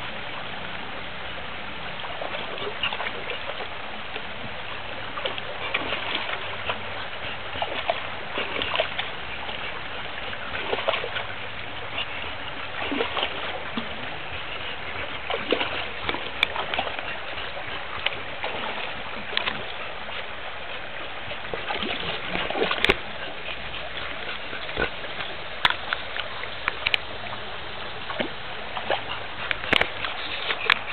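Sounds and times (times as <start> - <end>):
creek water running over rock: 0.0 - 30.9
dog splashing in water: 5.2 - 19.8, 21.4 - 27.0.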